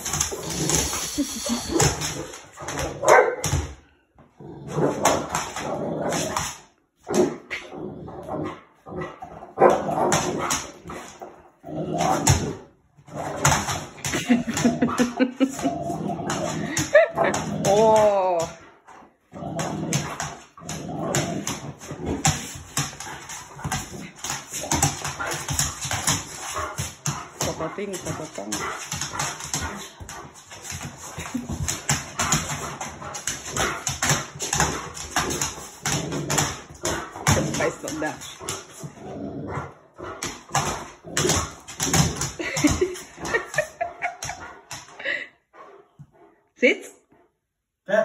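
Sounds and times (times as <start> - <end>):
dog claws scuffling on floor: 0.0 - 3.7
claws scrabbling on laminate floor: 0.0 - 3.8, 19.4 - 39.2
dog making play noises: 19.8 - 46.4.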